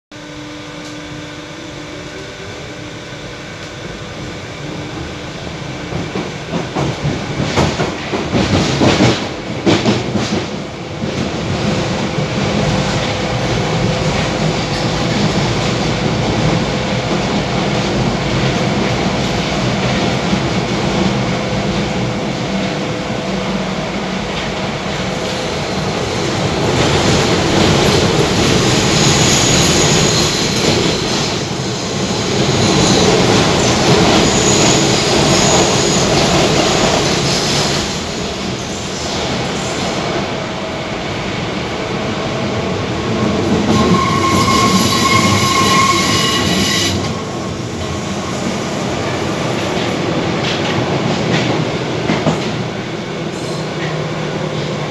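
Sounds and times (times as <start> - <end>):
metro train running in tunnel: 0.1 - 54.9
faint high squeal: 43.8 - 47.6.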